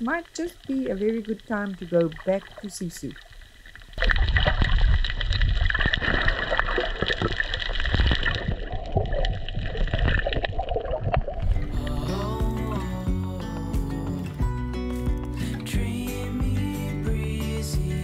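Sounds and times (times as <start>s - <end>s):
water sloshing underwater: 0.0s - 13.0s
small crackles and clicks: 0.1s - 11.4s
low rumble: 8.0s - 17.4s.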